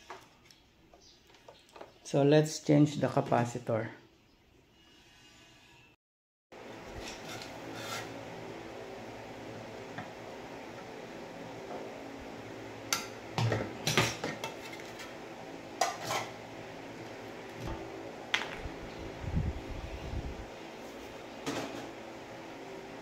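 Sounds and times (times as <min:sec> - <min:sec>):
steady low hum: 0:06.6 - 0:23.0.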